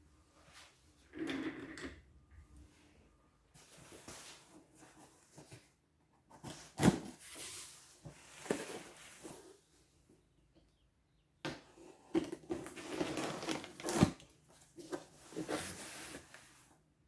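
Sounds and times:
cardboard boxes scraping and rustling: 0:12.2 - 0:16.6.

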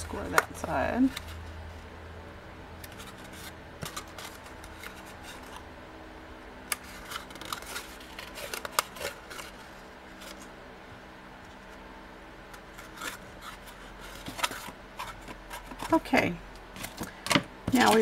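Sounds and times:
faint steady hum: 0:00.0 - 0:18.0
cardstock crackling and clicking: 0:06.7 - 0:10.5, 0:16.8 - 0:18.0.

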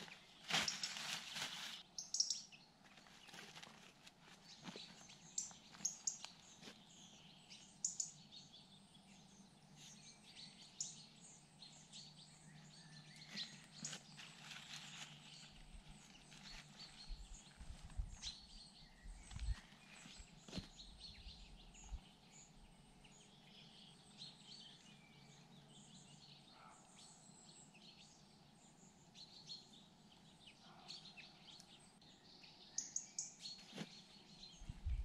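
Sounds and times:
plastic bag rustling: 0:00.0 - 0:01.8
songbirds chirping: 0:00.0 - 0:35.0.

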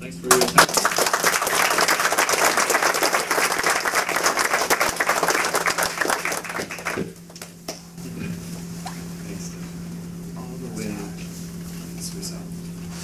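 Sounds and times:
audience applauding: 0:00.3 - 0:07.5.

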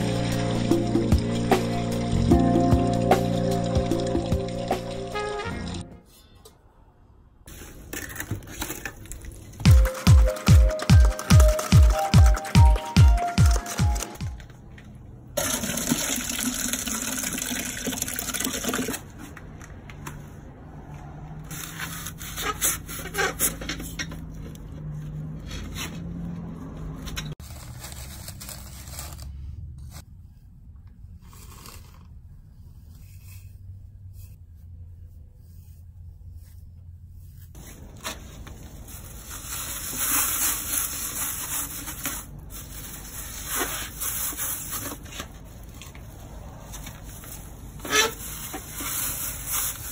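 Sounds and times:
steel wool rubbing and scraping: 0:21.5 - 0:49.9.

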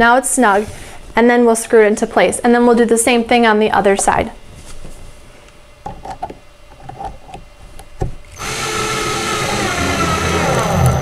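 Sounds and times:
cordless drill whining: 0:08.3 - 0:11.0.

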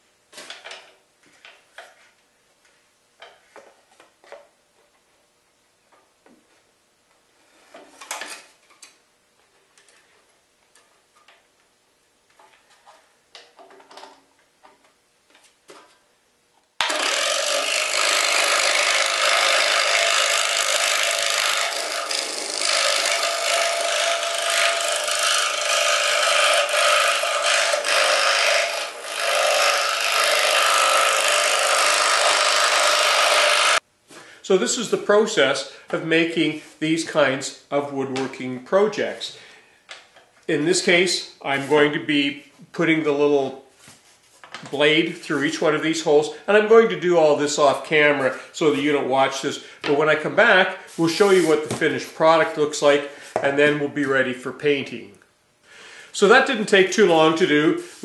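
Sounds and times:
scroll saw cutting wood: 0:16.8 - 0:33.8.

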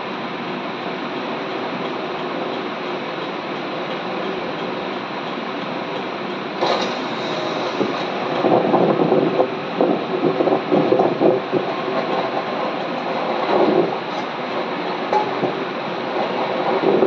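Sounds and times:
tornado winds roaring: 0:01.1 - 0:17.0
buffeting rumbles: 0:06.6 - 0:17.0.

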